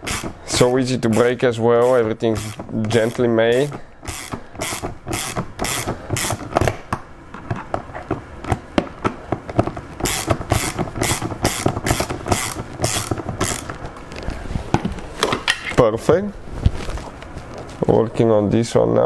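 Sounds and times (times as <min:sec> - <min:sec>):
ratchet wrench clicking: 0:00.0 - 0:00.3, 0:01.2 - 0:06.5, 0:10.0 - 0:13.7.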